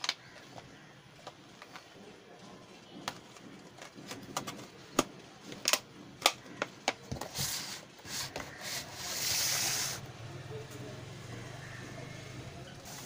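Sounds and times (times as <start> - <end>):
plastic lid clicks and crackles: 3.8 - 7.3.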